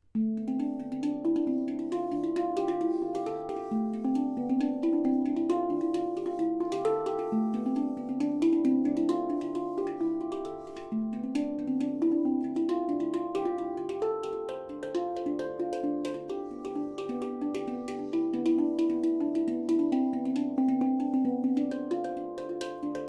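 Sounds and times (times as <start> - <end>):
handpan notes ringing: 0.2 - 23.0.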